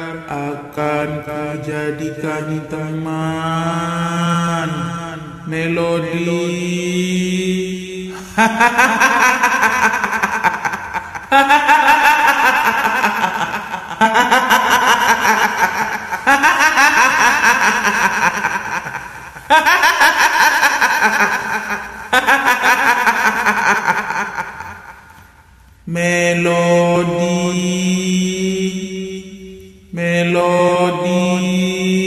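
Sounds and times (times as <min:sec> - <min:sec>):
woman cackling high-pitched: 0:08.4 - 0:25.2.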